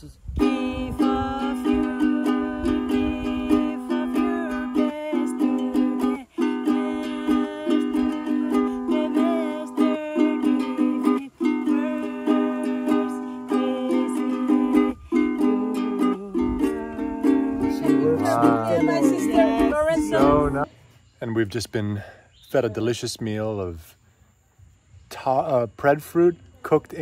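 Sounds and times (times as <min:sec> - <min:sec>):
person singing: 0:00.4 - 0:20.7
ukulele strumming: 0:00.4 - 0:20.7.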